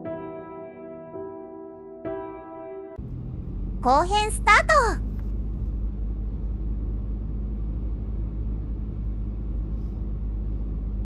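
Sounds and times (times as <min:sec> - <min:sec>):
car driving on paved road: 0:03.0 - 0:11.0.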